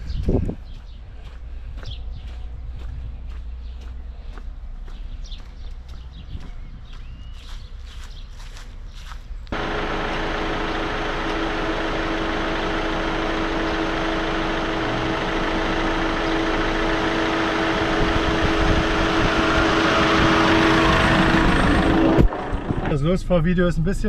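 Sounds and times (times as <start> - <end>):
van engine idling: 9.2 - 24.0.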